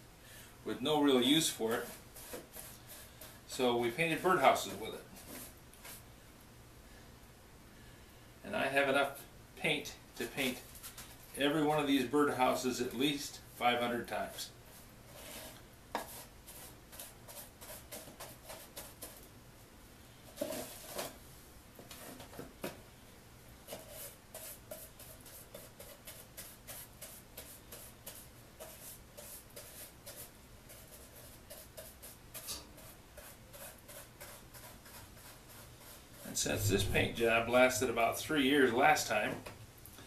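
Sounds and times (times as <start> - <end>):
paintbrush strokes on wood: 1.4 - 6.0, 23.8 - 38.2.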